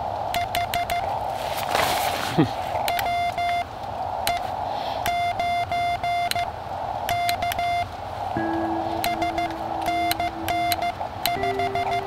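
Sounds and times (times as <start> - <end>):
receiver hiss: 0.0 - 12.0
morse code beeps: 0.4 - 1.1, 2.9 - 3.7, 5.1 - 6.5, 7.1 - 7.9, 8.5 - 12.0.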